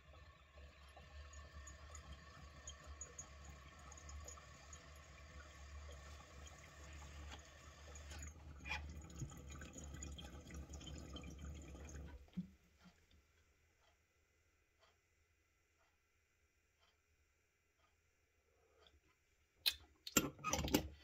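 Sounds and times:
water bubbling in a bong: 0.0 - 12.4.

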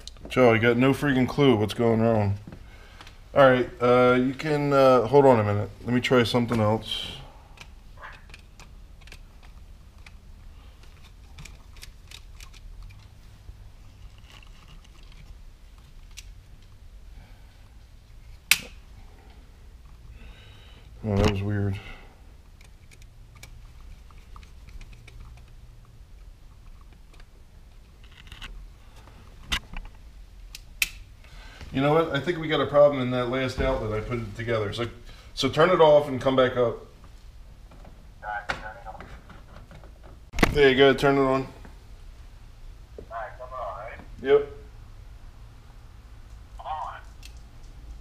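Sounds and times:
wires being handled: 5.8 - 16.9, 22.4 - 31.8.

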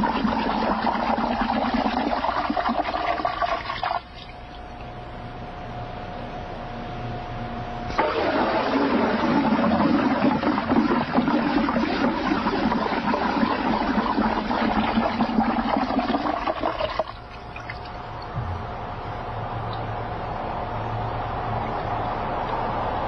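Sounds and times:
water sloshing in a barrel: 0.0 - 4.9, 8.0 - 18.4.

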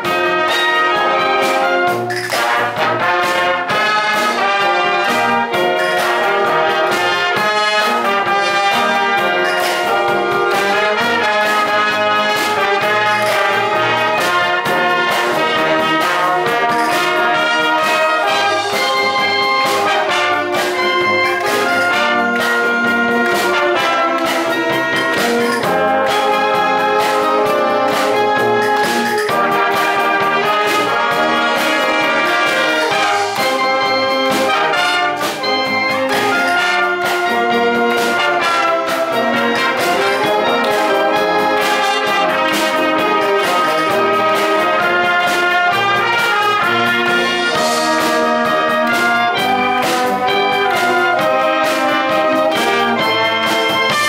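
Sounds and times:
wind band playing: 0.0 - 54.0.

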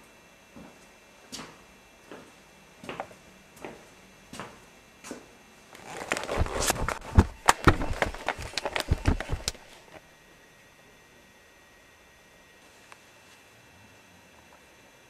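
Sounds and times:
scuffling with sharp knocks: 5.8 - 10.0.

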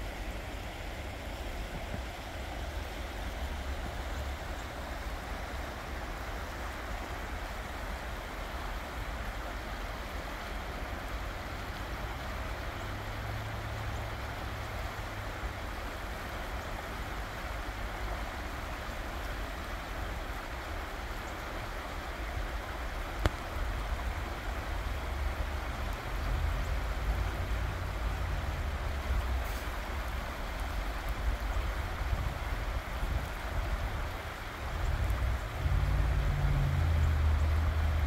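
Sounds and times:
creek water rushing over rocks: 0.0 - 38.0
low rumble: 35.3 - 38.0.

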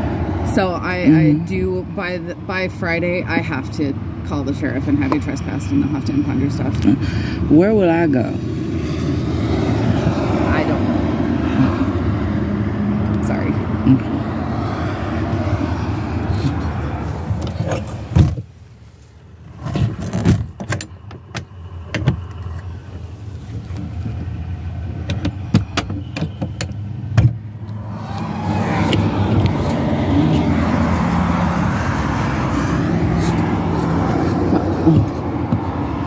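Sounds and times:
vehicle hum: 0.0 - 36.0.

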